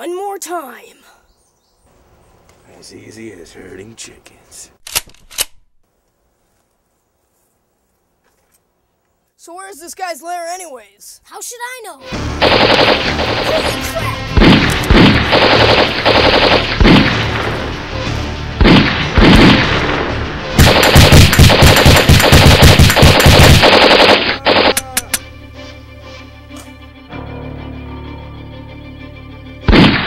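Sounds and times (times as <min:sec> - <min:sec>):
single gunshots: 0:12.4 - 0:13.6, 0:14.4 - 0:17.7, 0:18.6 - 0:24.8, 0:29.7 - 0:30.0
automatic gunfire bursts: 0:12.4 - 0:13.8, 0:14.4 - 0:17.1, 0:20.6 - 0:24.8.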